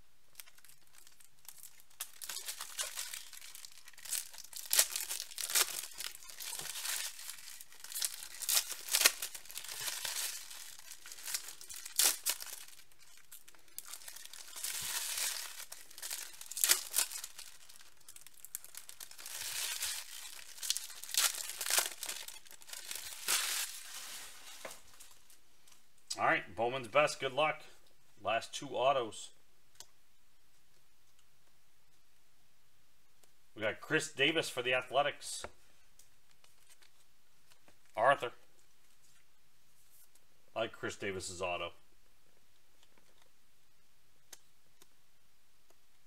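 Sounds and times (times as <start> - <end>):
foil wrappers crinkling and tearing: 0.4 - 25.4.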